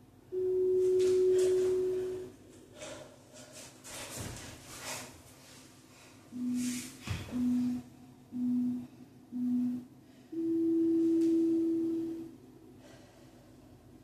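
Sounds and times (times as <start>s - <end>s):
long high timer beep: 6.4s - 6.7s, 7.3s - 12.3s
short timer beeps: 7.3s - 7.8s, 8.4s - 8.8s, 9.4s - 9.8s.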